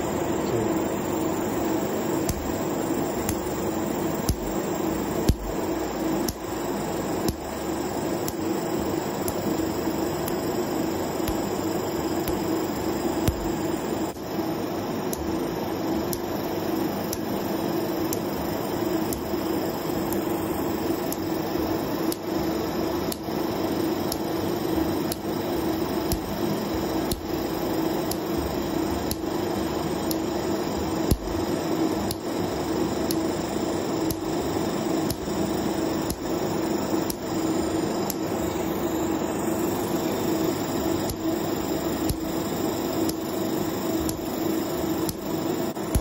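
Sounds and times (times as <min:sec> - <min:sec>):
laser unit hum: 0:00.0 - 0:46.0
sharp tick: 0:04.2 - 0:04.6, 0:06.2 - 0:06.4, 0:09.2 - 0:09.4, 0:10.2 - 0:10.4, 0:11.2 - 0:11.5, 0:12.2 - 0:12.5, 0:22.1 - 0:22.3, 0:23.1 - 0:23.3, 0:25.1 - 0:25.3, 0:26.1 - 0:26.3, 0:27.1 - 0:27.3.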